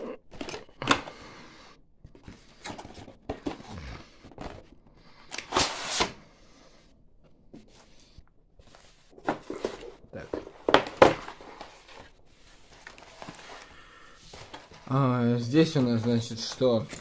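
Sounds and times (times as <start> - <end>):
cardboard box rustling and scraping: 14.3 - 15.0.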